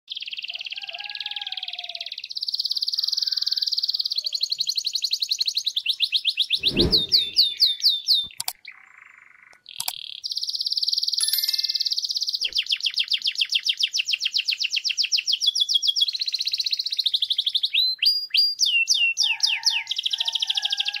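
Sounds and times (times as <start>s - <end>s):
low thud: 6.6s - 7.4s.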